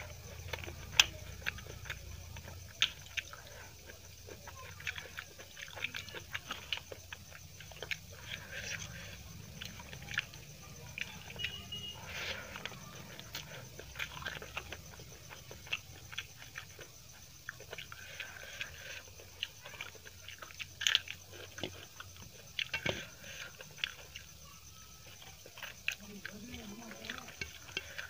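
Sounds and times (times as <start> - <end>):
wet chewing and mouth smacks: 0.0 - 28.0
fingers mixing rice on steel plate: 25.0 - 28.0.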